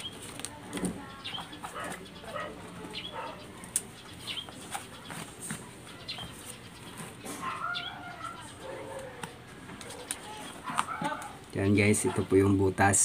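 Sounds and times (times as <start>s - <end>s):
clicks and rustles of handling: 0.0s - 2.9s.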